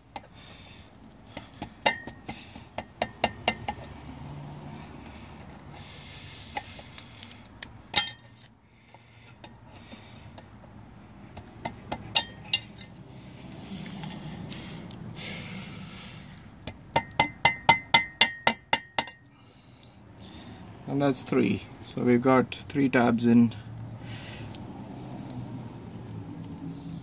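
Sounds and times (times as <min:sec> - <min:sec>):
pliers clinking on metal washer: 0:07.9 - 0:08.5, 0:12.2 - 0:13.0.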